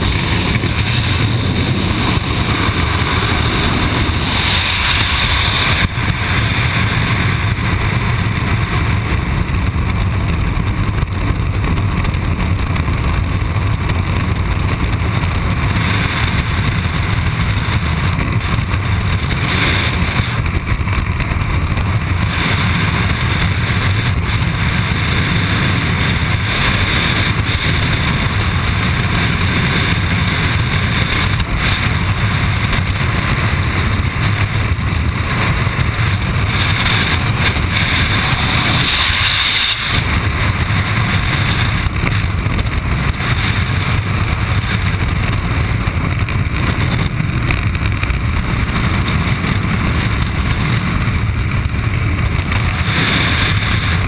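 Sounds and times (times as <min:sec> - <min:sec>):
wind roaring over microphone: 0:00.0 - 0:54.0.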